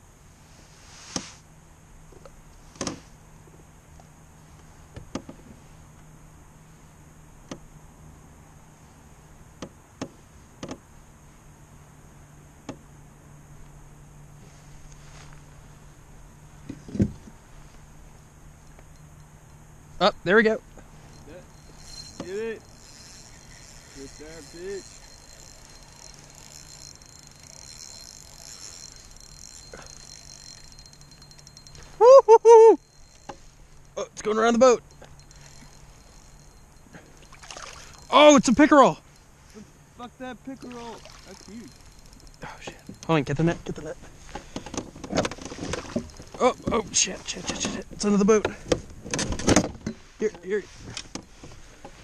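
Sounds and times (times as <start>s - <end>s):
faint steady hum: 0.0s - 52.0s
fishing reel clicking: 21.2s - 32.0s, 32.8s - 34.0s, 34.8s - 38.4s, 40.6s - 43.2s
fishing gear knocking in a canoe: 44.3s - 46.8s.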